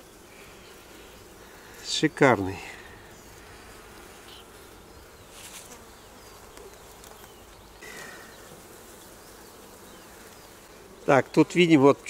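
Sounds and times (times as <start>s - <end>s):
honeybees buzzing: 0.0s - 12.0s
brief rustle: 5.3s - 5.8s.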